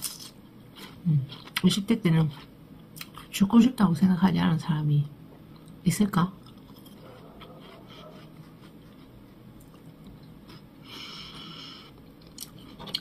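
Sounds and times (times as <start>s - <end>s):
person breathing: 10.8s - 12.0s.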